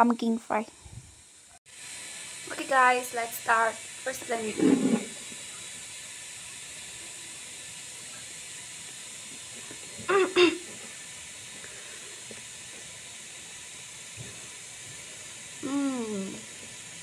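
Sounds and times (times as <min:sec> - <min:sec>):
background hiss: 0:00.0 - 0:17.0
woman humming: 0:15.6 - 0:16.5.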